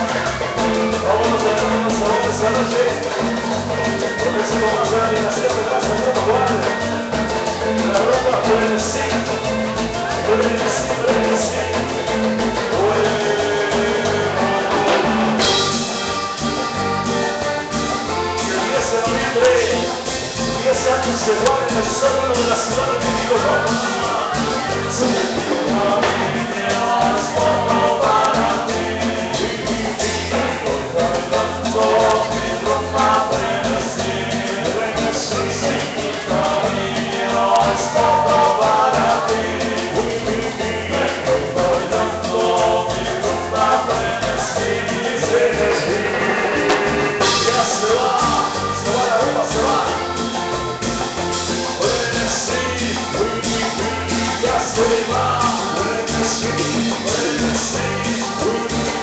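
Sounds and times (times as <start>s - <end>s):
person singing: 0.0s - 50.8s, 51.5s - 59.0s
accordion: 0.0s - 59.0s
bass guitar thumping: 0.0s - 59.0s
congas: 0.0s - 59.0s
drums: 0.0s - 59.0s
live latin dance band: 0.0s - 59.0s
timbales: 39.0s - 49.8s.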